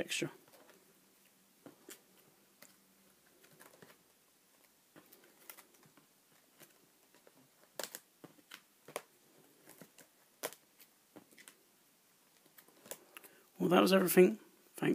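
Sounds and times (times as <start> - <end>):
plastic binder pages turning: 1.6 - 11.6, 12.3 - 13.2.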